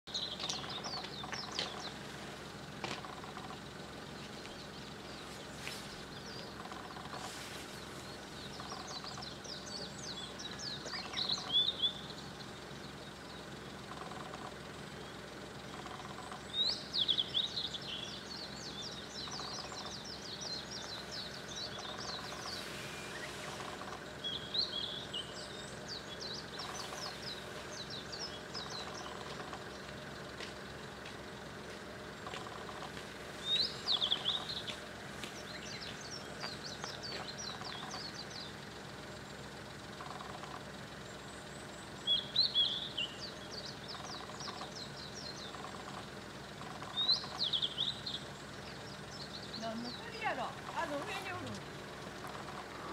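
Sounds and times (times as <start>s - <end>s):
bird singing high whistled notes: 16.6s - 23.5s.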